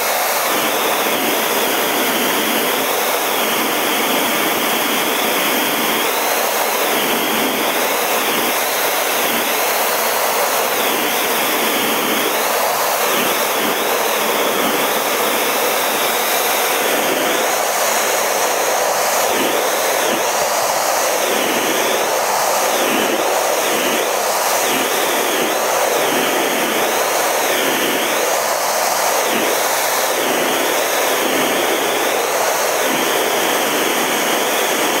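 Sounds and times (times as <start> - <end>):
jet engine and airflow rush: 0.0 - 35.0
wavering high whine: 0.0 - 35.0.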